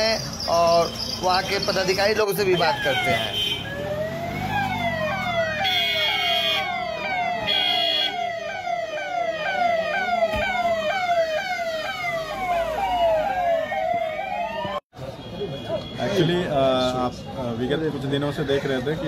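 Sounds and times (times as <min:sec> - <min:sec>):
police sirens wailing and yelping: 0:01.4 - 0:14.9
short steady siren tones: 0:03.6 - 0:14.8.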